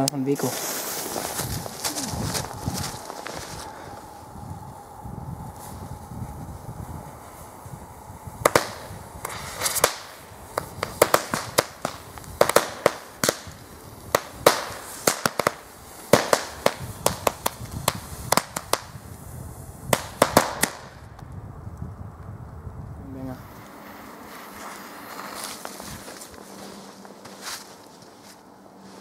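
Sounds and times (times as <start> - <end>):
firecrackers banging: 8.3 - 19.2, 19.8 - 21.1.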